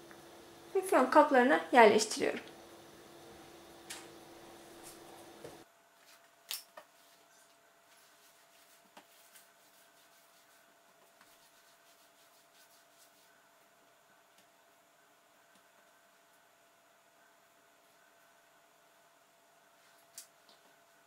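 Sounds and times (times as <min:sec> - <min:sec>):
steady hum: 0:00.0 - 0:05.7.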